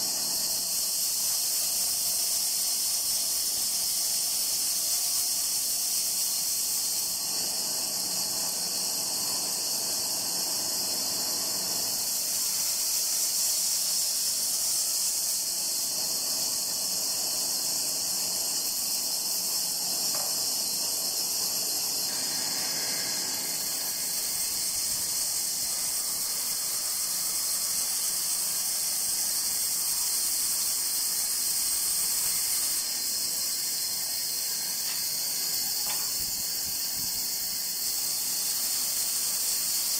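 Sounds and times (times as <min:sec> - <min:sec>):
bandsaw blade cutting wood: 0:20.0 - 0:28.1, 0:31.3 - 0:36.6.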